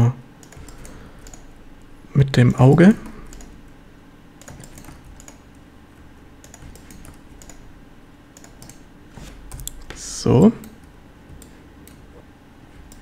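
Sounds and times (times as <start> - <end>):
faint low hum: 0.0 - 13.0
keyboard and mouse clicks: 0.4 - 1.6, 3.0 - 3.8, 4.4 - 7.7, 8.3 - 10.0, 10.6 - 13.0.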